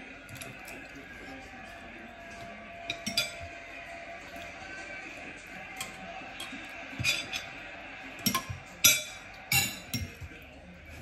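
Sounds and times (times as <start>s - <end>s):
spoon clinking on a plate: 2.8s - 3.6s, 5.7s - 10.3s.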